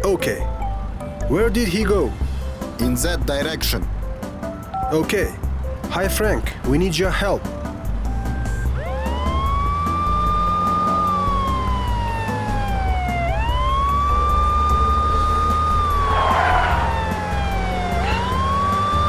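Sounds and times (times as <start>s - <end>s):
police siren wailing: 8.8s - 19.0s.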